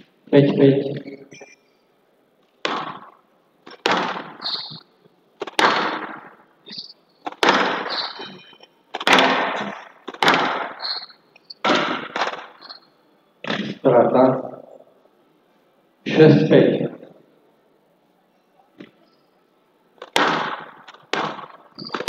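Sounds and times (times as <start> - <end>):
court shoes squeaking: 0.9 - 1.7, 2.6 - 13.8, 20.8 - 22.0
squash ball striking walls: 2.6 - 4.4, 5.4 - 6.4, 7.3 - 8.0, 8.9 - 10.8, 11.6 - 12.5, 20.0 - 22.0.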